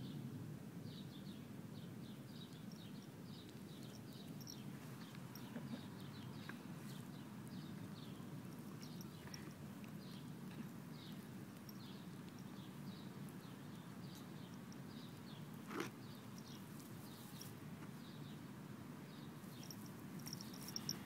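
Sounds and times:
faint high chirp: 0:19.1 - 0:21.0.

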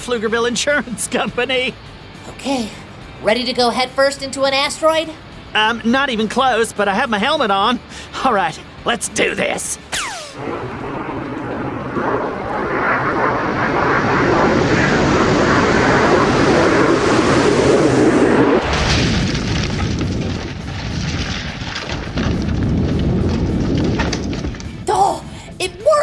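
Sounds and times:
aircraft-like whoosh: 0:09.8 - 0:24.9
deep rumble with crackling: 0:10.4 - 0:25.6.

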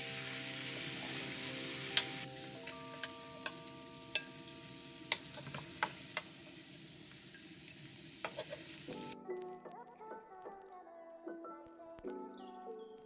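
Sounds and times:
food sizzling in a wok: 0:00.0 - 0:09.2.

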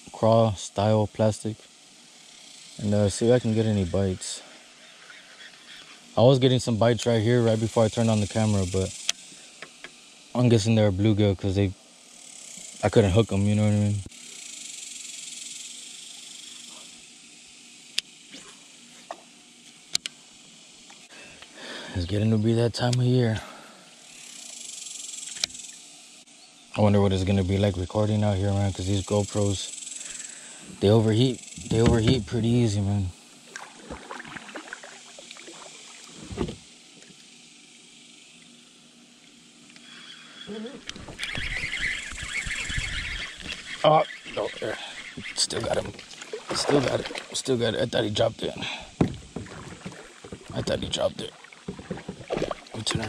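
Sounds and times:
high insect drone: 0:00.0 - 0:53.0
hiss with rapid clicks: 0:06.8 - 0:10.5, 0:12.0 - 0:13.0, 0:13.8 - 0:21.6, 0:23.9 - 0:26.3, 0:29.0 - 0:31.7
gear knocking against kayak hull: 0:31.6 - 0:32.4, 0:49.0 - 0:52.8.

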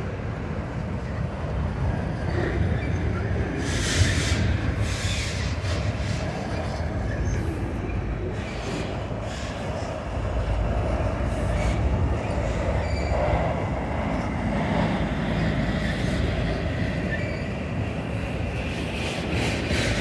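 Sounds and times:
freight cars rumbling on rails: 0:00.0 - 0:20.0
high wheel squeals: 0:11.4 - 0:13.5, 0:17.0 - 0:17.8.

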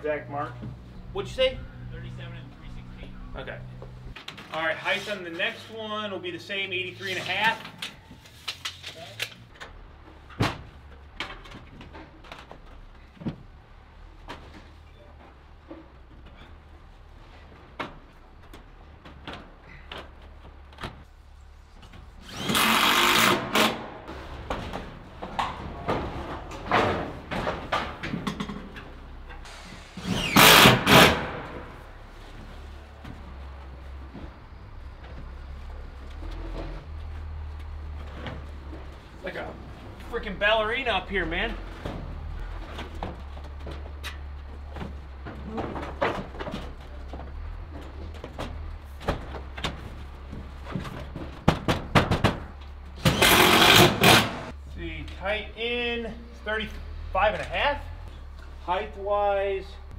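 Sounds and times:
construction knocks and clicks: 0:24.4 - 0:29.0, 0:42.7 - 0:54.2
knocks on steel panels: 0:50.7 - 0:54.5.

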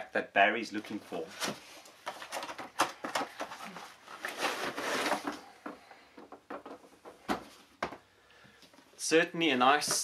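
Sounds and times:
cardboard rustling and scraping: 0:01.1 - 0:05.8.

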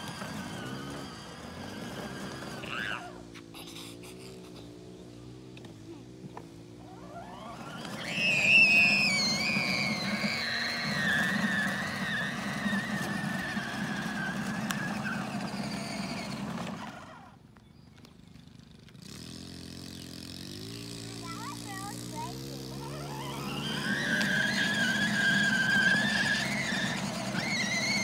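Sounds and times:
toy electric motorcycle whirring: 0:00.0 - 0:05.4, 0:06.7 - 0:28.0
child squealing: 0:02.5 - 0:04.0, 0:08.1 - 0:14.2, 0:22.8 - 0:28.0.

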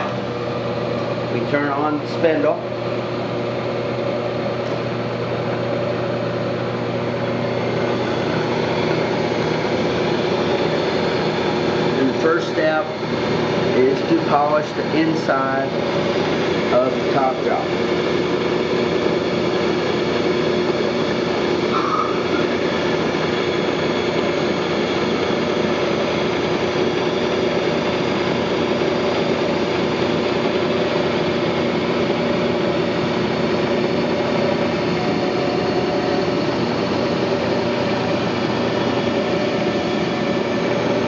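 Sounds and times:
milling machine spindle hum: 0:00.0 - 0:41.0.

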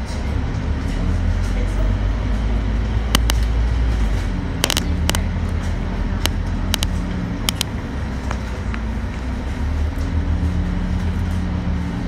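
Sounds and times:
bus diesel engine running: 0:00.0 - 0:12.0
sharp clicks and rattles: 0:03.1 - 0:03.6, 0:04.6 - 0:07.8.

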